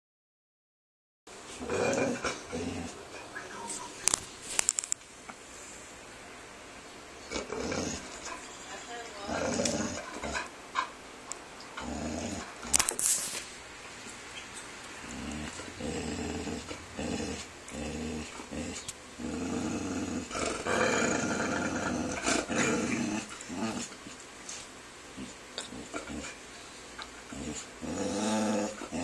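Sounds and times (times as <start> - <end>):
dog growling: 1.5 - 3.3, 7.2 - 8.5, 9.2 - 10.9, 11.7 - 12.9, 14.9 - 24.1, 25.1 - 26.4, 27.0 - 29.0.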